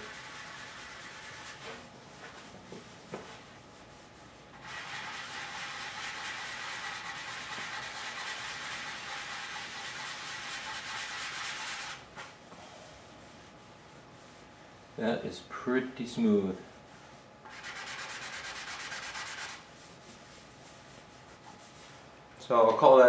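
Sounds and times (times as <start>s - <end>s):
sanding block scratchy rubbing: 0.0s - 1.8s, 3.7s - 12.0s, 16.9s - 21.9s.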